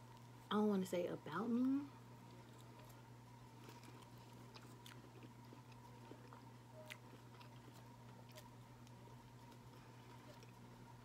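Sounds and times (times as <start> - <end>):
steady low hum: 0.0 - 11.0
faint chewing: 2.2 - 11.0.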